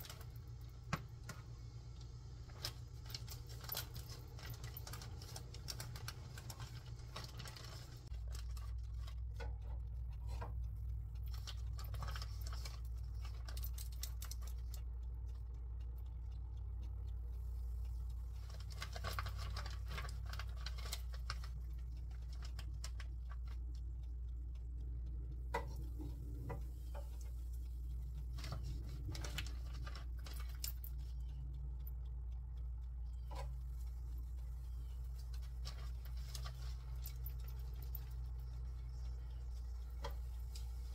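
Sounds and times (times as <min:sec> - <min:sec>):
hot oil crackling and popping: 0:00.0 - 0:10.6, 0:33.0 - 0:40.9
steady low hum: 0:00.0 - 0:40.9.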